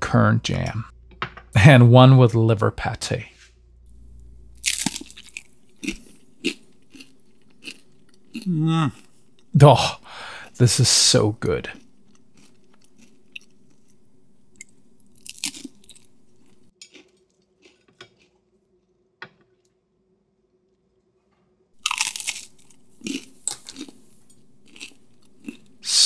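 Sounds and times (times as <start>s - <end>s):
crispbread crunching while chewed: 4.6s - 9.5s, 11.4s - 14.0s, 14.6s - 18.9s, 21.8s - 25.8s.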